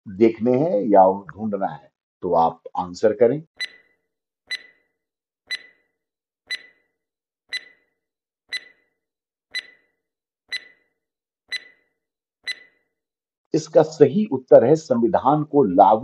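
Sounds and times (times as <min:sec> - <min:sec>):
stopwatch ticking: 0:03.6 - 0:03.9, 0:04.5 - 0:04.9, 0:05.5 - 0:05.9, 0:06.5 - 0:06.9, 0:07.5 - 0:07.9, 0:08.5 - 0:10.9, 0:11.5 - 0:12.8.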